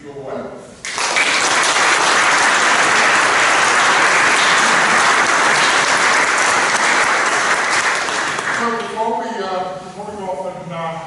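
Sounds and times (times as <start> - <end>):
audience applauding: 0.8 - 8.9.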